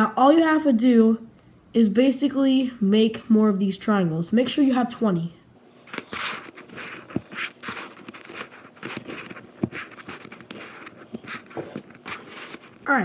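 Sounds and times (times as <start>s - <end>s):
scratchy handling noise: 5.7s - 13.0s.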